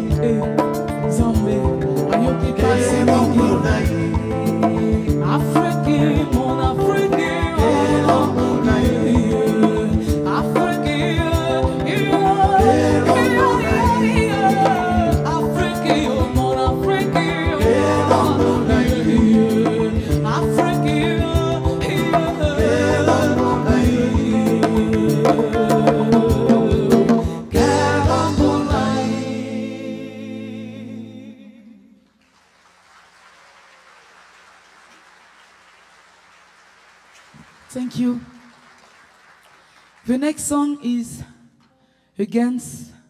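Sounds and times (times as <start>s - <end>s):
woman singing: 0.0s - 29.2s
bass guitar: 0.0s - 30.2s
drums keeping a beat: 0.1s - 29.3s
faint audience applause: 32.2s - 40.1s.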